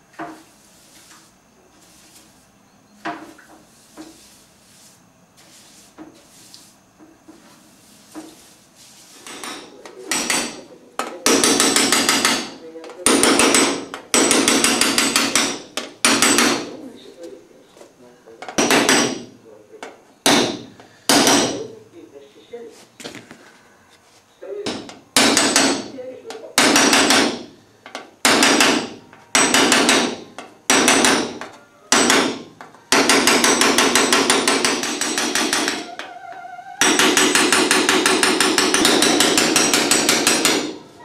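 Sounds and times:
hammer striking metal punch: 9.3s - 10.6s, 11.2s - 16.7s, 18.6s - 19.3s, 20.2s - 21.6s, 24.7s - 25.9s, 26.6s - 27.5s, 28.2s - 36.0s, 36.8s - 40.8s.

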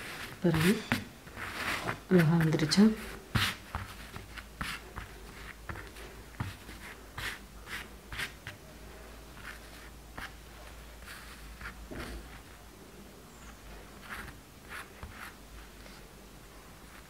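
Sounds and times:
hands rustling cloth: 0.0s - 8.6s.

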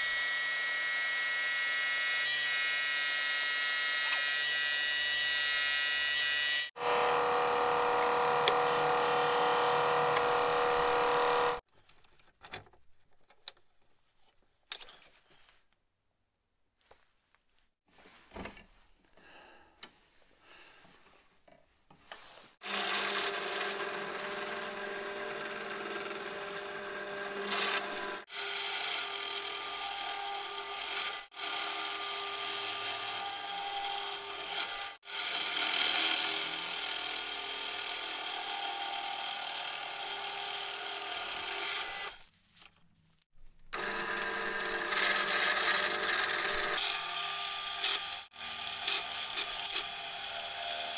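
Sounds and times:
drill bit rasping wood: 6.7s - 11.6s
drill press motor hum: 6.8s - 11.6s, 43.7s - 47.1s
faint handling sounds: 11.7s - 16.0s.

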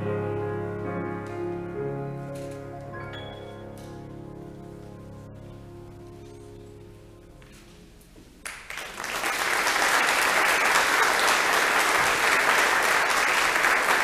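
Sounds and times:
piano music: 0.0s - 8.3s
audience applauding: 8.4s - 14.0s.

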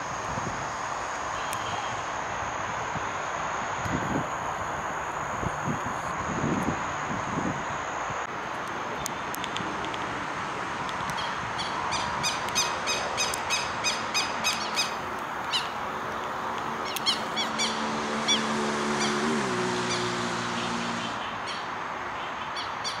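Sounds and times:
bird calling: 11.1s - 15.9s, 16.7s - 23.0s.

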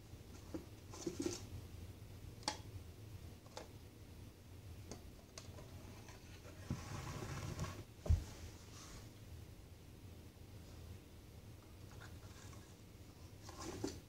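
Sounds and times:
scraping shuffle: 6.2s - 9.1s.

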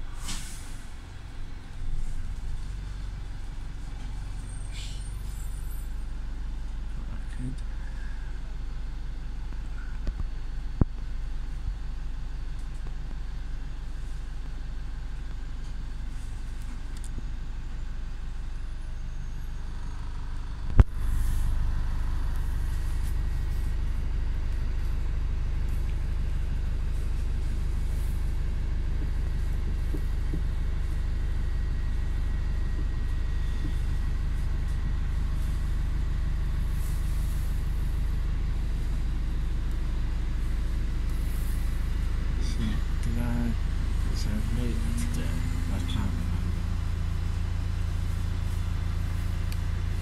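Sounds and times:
vehicle rumble from inside cabin: 0.0s - 50.0s.

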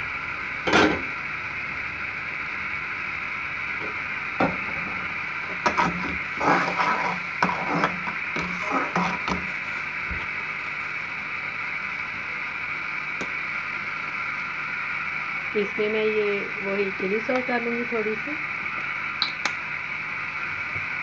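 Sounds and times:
metal skimmer scraping metal pan: 5.6s - 9.5s.

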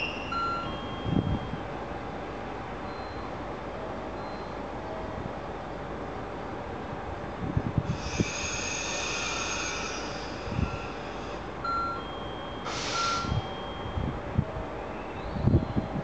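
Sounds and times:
locomotive rumble: 0.0s - 16.0s
short hiss: 12.7s - 13.3s.

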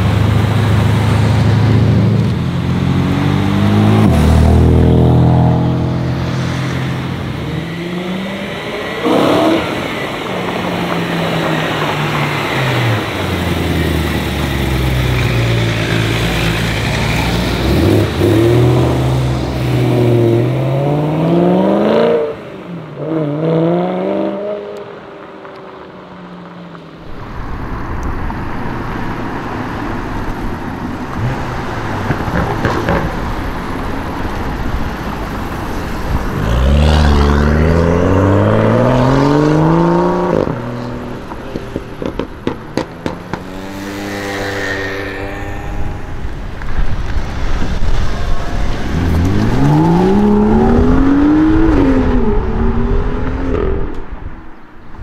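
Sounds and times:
car engines revving and accelerating: 0.0s - 55.0s.

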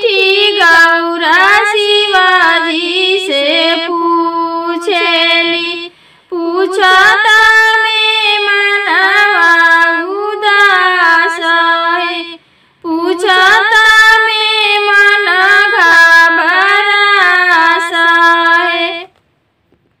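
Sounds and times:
high voice singing devotional song: 0.0s - 19.2s.

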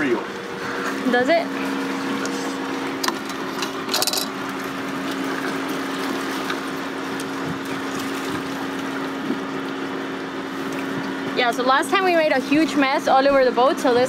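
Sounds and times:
boat motor humming: 0.0s - 14.0s
water splashing along hull: 0.0s - 14.0s
rattle of clicks: 3.0s - 4.3s.

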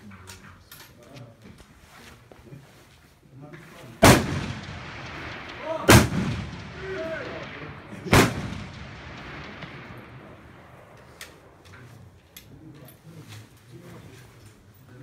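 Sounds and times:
rifle shots echoing: 4.0s - 12.2s.

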